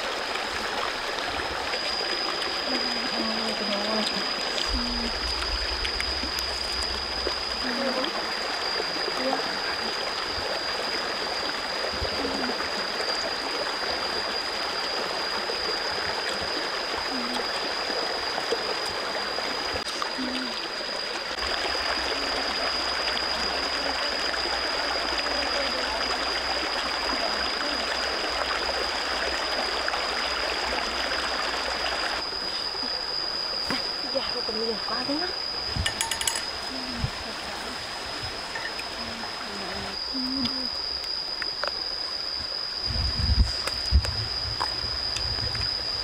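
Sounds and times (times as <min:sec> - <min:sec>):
stream running over rocks: 0:00.0 - 0:46.0
thin high-pitched tone: 0:33.6 - 0:37.3, 0:38.3 - 0:46.0.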